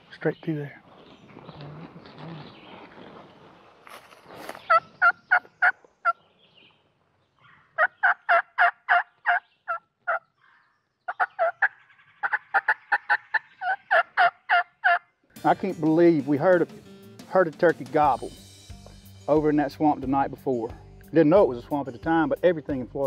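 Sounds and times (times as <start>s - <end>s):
soft rustle: 0.8s - 4.7s
turkey yelping: 7.4s - 15.0s.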